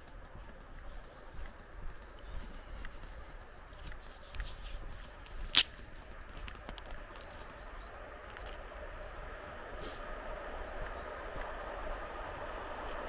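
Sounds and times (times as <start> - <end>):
faint footsteps on dirt: 0.0 - 13.0
sharp snap: 5.5 - 5.8.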